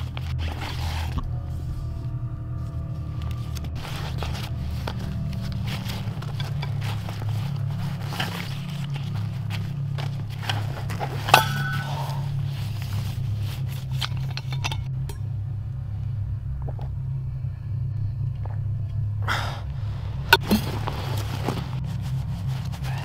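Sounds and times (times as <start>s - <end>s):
low rumbling drone: 0.0s - 23.0s
metal water bottle clinking: 10.0s - 12.3s, 13.7s - 15.2s.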